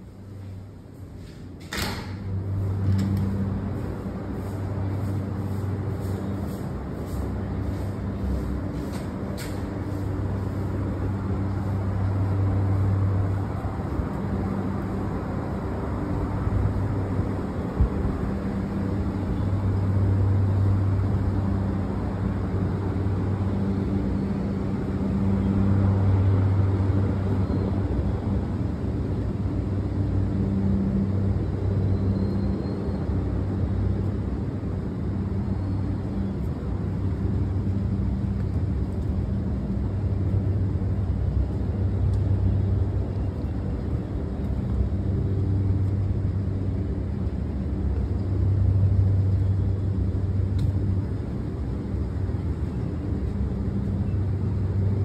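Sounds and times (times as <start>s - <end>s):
low mechanical hum: 0.0s - 55.0s
rumble: 0.0s - 55.0s.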